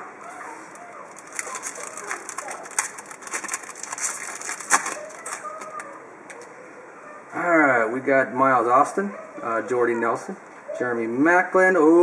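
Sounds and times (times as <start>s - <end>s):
foil wrapper crinkling: 0.3s - 6.4s
wrapper tearing snap: 0.7s - 6.5s.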